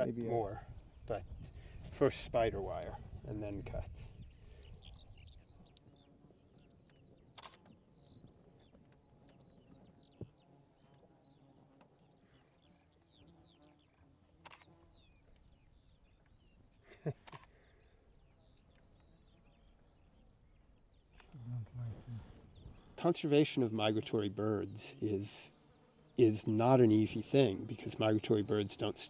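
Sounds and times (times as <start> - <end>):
sharp clicks: 6.9 - 7.8, 14.4 - 14.7, 17.1 - 17.6.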